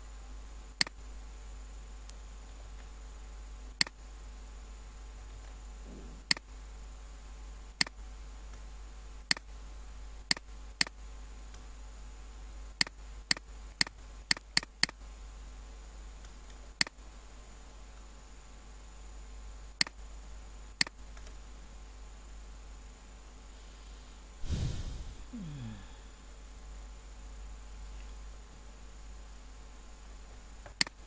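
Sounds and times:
low electrical hum: 0:00.0 - 0:31.0
computer mouse clicking: 0:09.3 - 0:09.5, 0:12.8 - 0:15.0, 0:30.6 - 0:31.0.

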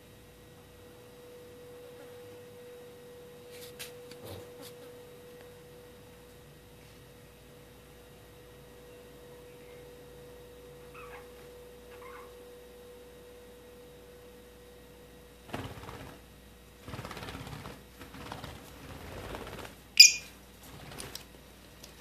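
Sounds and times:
lovebirds chirping: 0:20.0 - 0:20.4.

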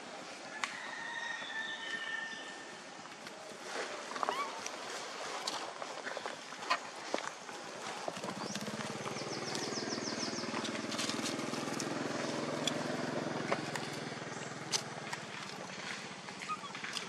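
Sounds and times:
small engine running: 0:08.1 - 0:16.1.

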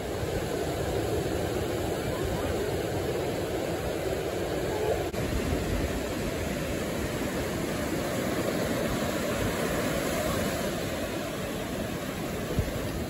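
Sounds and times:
ocean surf breaking: 0:00.0 - 0:13.0
wind on microphone: 0:00.0 - 0:13.0.

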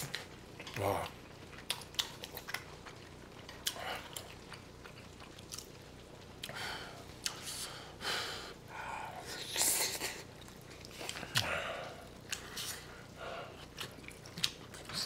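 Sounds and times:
close chewing: 0:00.0 - 0:07.5, 0:09.5 - 0:15.0
breathing: 0:06.5 - 0:08.9.

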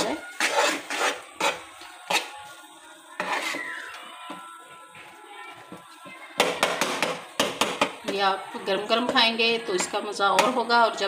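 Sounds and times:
metal spoon scraping metal pan: 0:00.0 - 0:02.4, 0:03.1 - 0:04.0
faint background music: 0:00.0 - 0:11.0.

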